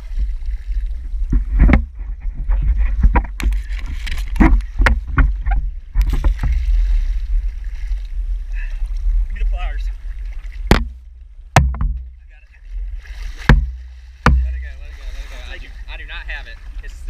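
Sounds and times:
steady low rumble: 0.0 - 17.0
sharp knocks: 10.7 - 12.2, 13.4 - 14.7.

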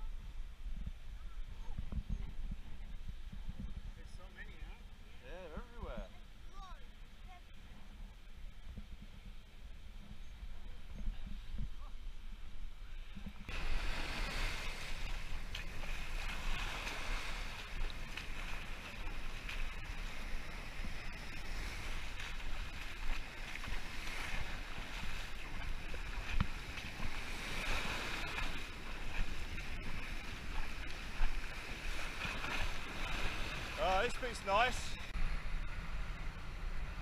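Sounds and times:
wind rumbling on microphone: 0.0 - 37.0
surf washing up the beach: 13.0 - 37.0.

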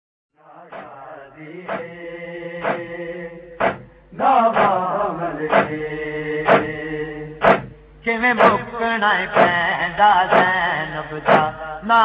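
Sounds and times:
men chanting: 0.4 - 12.0
lead voice chanting: 0.5 - 12.0
sharp drum beat: 1.7 - 1.9, 2.6 - 2.9, 3.6 - 4.0, 4.6 - 4.8, 5.5 - 5.8, 6.5 - 6.8, 7.4 - 8.7, 9.4 - 9.7, 10.3 - 11.6.

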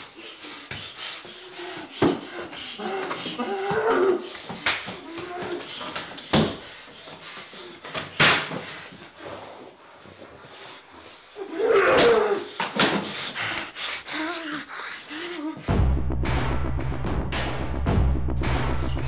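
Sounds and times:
man choking and gasping: 1.6 - 5.0
music with deep drum: 15.6 - 19.0.

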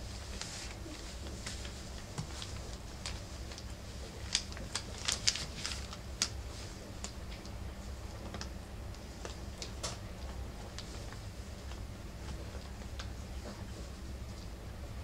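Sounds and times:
low steady hum: 0.0 - 15.0
puppy claws clicking on newspaper: 1.2 - 6.4.

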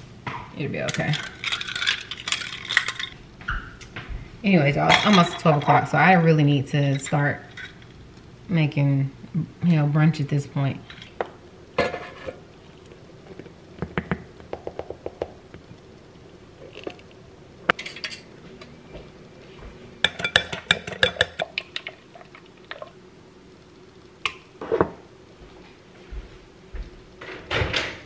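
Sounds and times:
utensils clinking against glass bowl: 0.9 - 3.2, 4.9 - 5.9, 17.7 - 18.3, 20.1 - 21.6.

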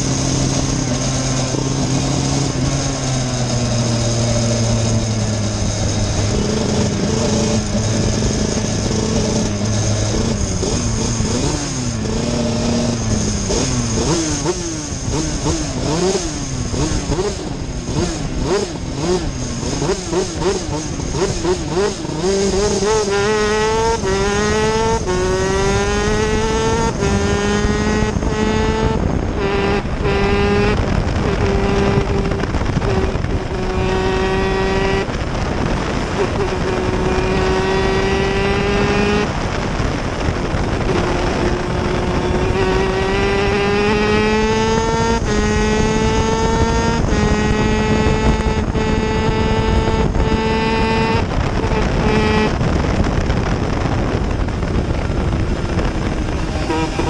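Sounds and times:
two-stroke kart engine revving: 0.0 - 57.0.

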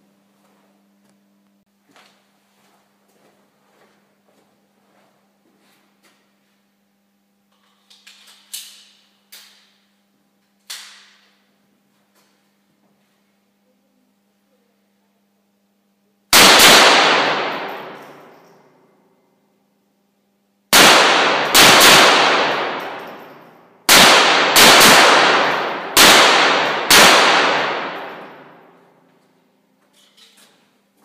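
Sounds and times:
pistol shots ringing: 16.4 - 18.6, 20.7 - 28.8.

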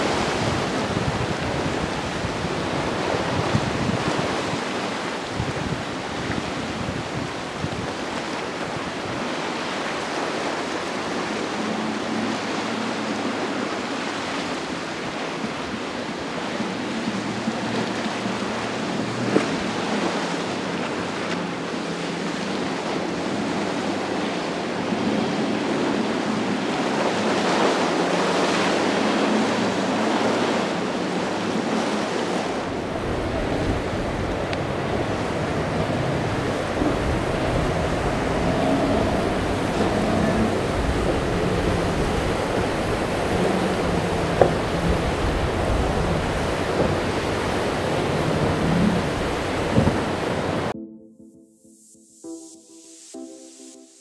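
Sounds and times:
hiss of boat spray and wake: 0.0 - 50.7
wind on microphone: 0.0 - 50.8
low boat engine drone: 0.0 - 52.4
deep heavy rumble: 32.7 - 50.7.

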